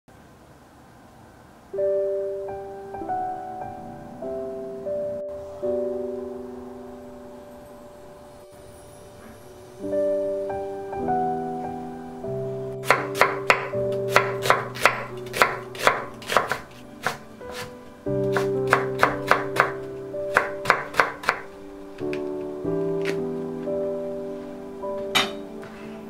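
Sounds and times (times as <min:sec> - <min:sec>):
soft piano music: 0:01.6 - 0:26.0
knife chopping on wooden board: 0:12.8 - 0:17.7, 0:18.3 - 0:21.4.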